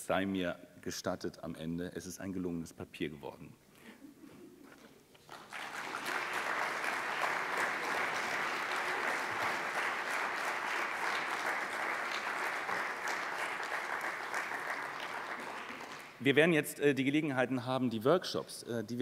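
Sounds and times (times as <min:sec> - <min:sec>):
audience applauding: 0:05.2 - 0:16.2.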